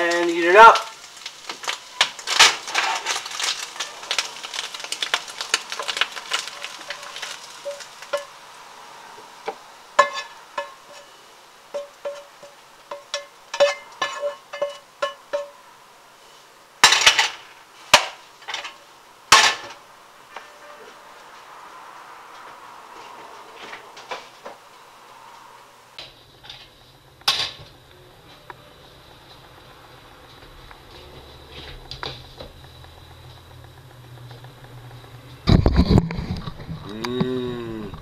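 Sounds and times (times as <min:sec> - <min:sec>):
food crackling: 0:00.0 - 0:38.0
spatula scraping frying pan: 0:01.1 - 0:08.4, 0:09.2 - 0:15.6
pan knocking: 0:10.0 - 0:11.1, 0:11.7 - 0:15.6.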